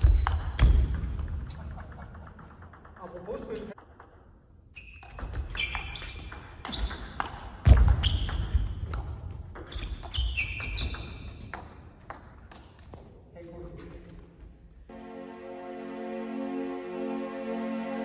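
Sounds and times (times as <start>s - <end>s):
shoes squeaking on floor: 4.8s - 8.8s, 9.6s - 11.5s.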